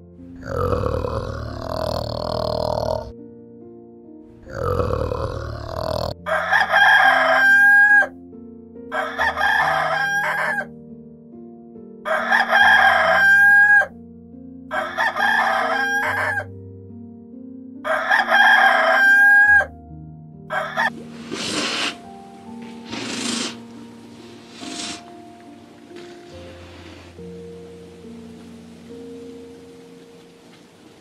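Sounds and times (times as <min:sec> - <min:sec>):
slow background music: 0:00.0 - 0:31.0
low grunt: 0:00.4 - 0:03.1, 0:04.4 - 0:06.2
rooster crowing: 0:06.2 - 0:08.1, 0:08.9 - 0:10.7, 0:12.1 - 0:13.9, 0:14.7 - 0:16.5, 0:17.8 - 0:19.7, 0:20.5 - 0:21.0.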